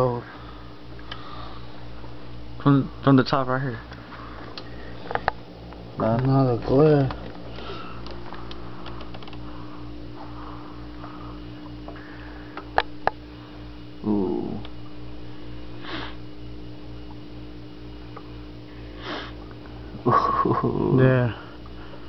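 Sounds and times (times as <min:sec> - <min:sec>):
aquarium pump humming: 0:00.0 - 0:22.0
sharp clicks: 0:08.0 - 0:09.4
brief sniffs: 0:19.0 - 0:19.4.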